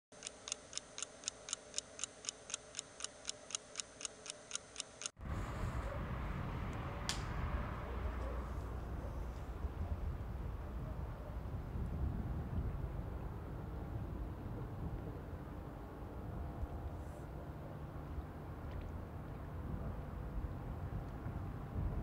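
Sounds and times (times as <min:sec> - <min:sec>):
clock-like ticking: 0:00.1 - 0:05.2
low rumble of street ambience: 0:05.2 - 0:22.0.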